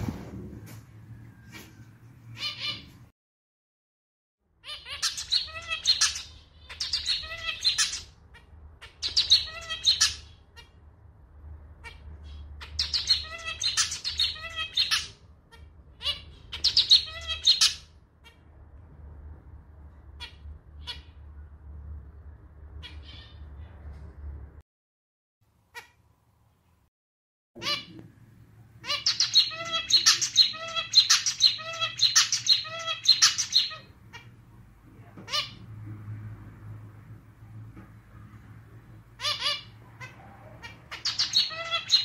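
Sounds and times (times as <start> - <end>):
finch singing: 4.6 - 10.7, 11.8 - 18.4, 28.8 - 34.4, 39.2 - 42.0.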